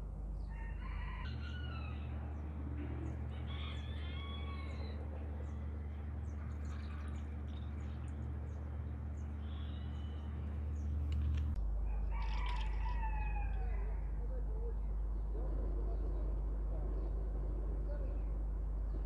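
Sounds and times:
steady low rumble: 0.0s - 19.0s
rooster crowing: 0.5s - 2.2s, 3.3s - 5.1s, 11.8s - 14.1s
small birds chirping: 1.5s - 11.6s.

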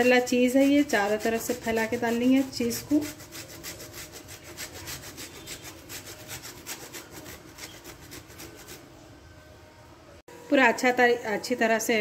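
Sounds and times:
cheese grating on metal grater: 0.0s - 8.9s.

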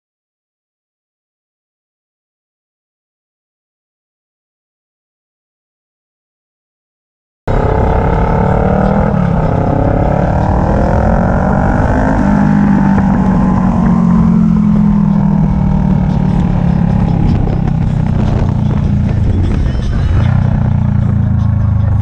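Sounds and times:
motorcycle engine running: 7.5s - 22.0s.

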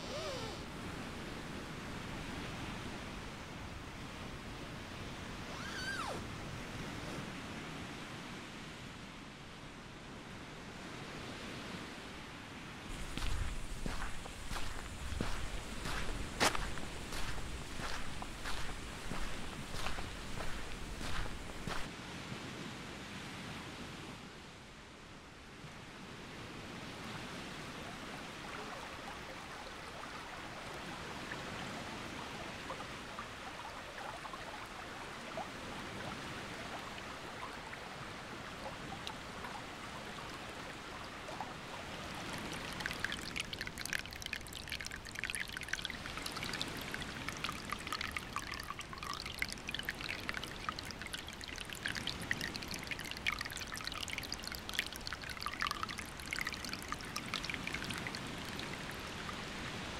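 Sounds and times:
water trickling down cliff: 12.9s - 21.9s, 28.0s - 59.8s.

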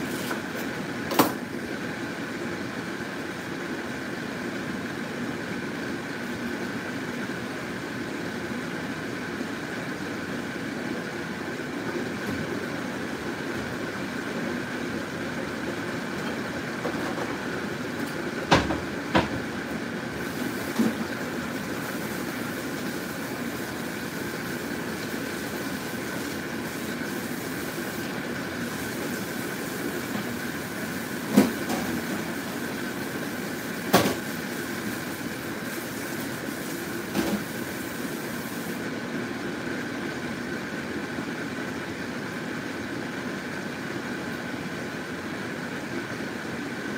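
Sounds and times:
broth simmering in a pot: 19.9s - 39.0s.

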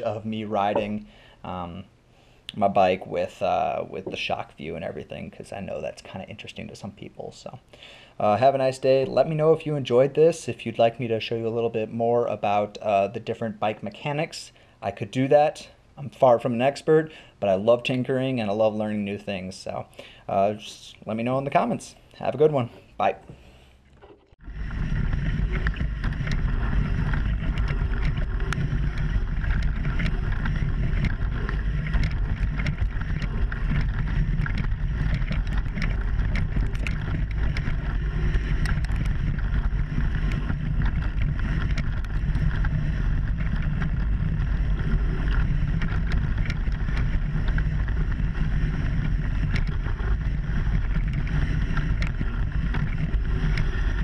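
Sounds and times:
bike tyre noise: 0.0s - 1.8s, 2.6s - 6.8s, 22.2s - 54.0s
bike clicks and rattles: 24.0s - 54.0s
wind rumble on microphone: 24.4s - 54.0s.

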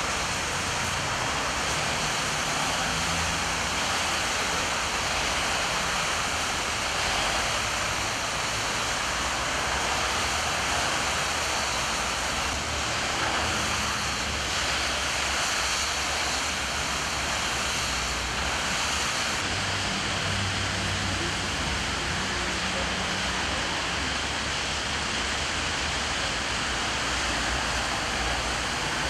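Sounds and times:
car tyres swishing on wet road: 0.0s - 29.0s
heavy downpour hissing: 0.0s - 29.0s.

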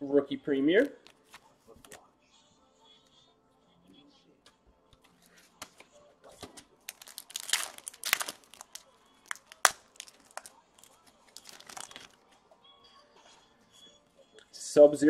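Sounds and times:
cards being handled: 0.8s - 2.0s, 5.0s - 12.2s
card pack wrapper crinkling: 6.9s - 12.2s.

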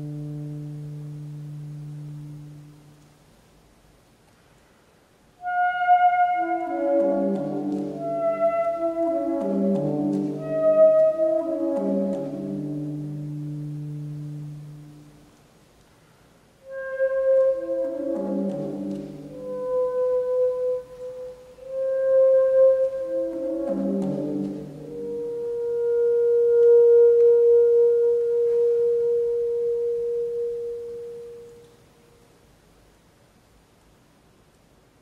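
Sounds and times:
saxophone playing: 5.4s - 15.2s, 16.6s - 31.7s.

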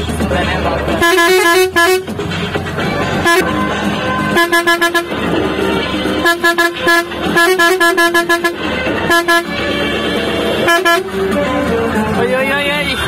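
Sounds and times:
engine and road noise: 0.0s - 13.0s
vehicle horn tooting: 1.0s - 2.1s, 3.2s - 3.6s, 4.2s - 5.3s, 6.1s - 11.2s.

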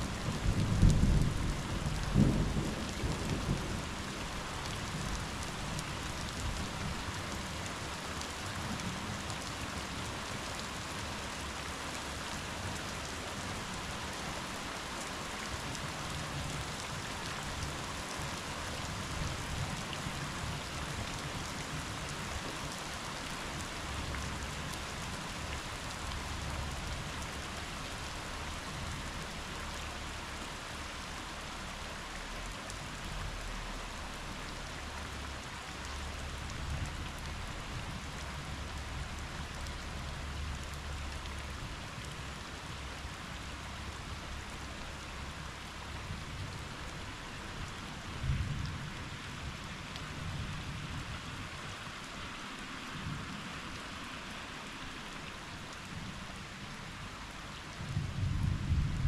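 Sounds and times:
steady rainfall: 0.0s - 59.0s
low thunder rumble: 57.8s - 59.0s.

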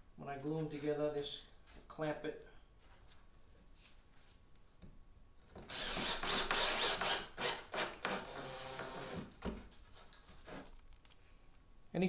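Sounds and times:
cordless drill driving screw into wood: 5.6s - 9.6s.

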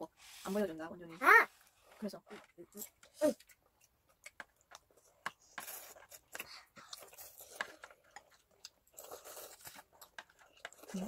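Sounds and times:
noodles being slurped: 5.0s - 11.0s.

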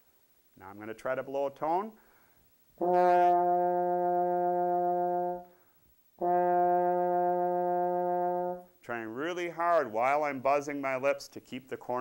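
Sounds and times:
trombone long steady tone: 2.8s - 10.4s.

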